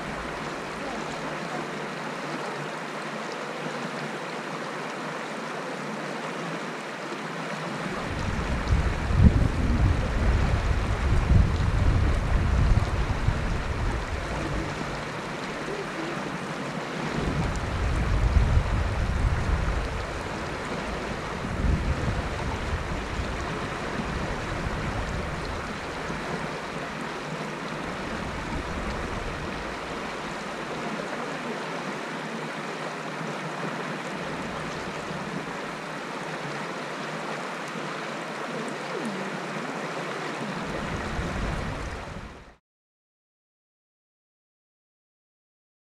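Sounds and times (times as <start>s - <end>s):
stream running over stones: 0.0s - 42.3s
wind buffeting microphone: 7.9s - 26.9s, 27.7s - 30.5s, 40.7s - 42.4s.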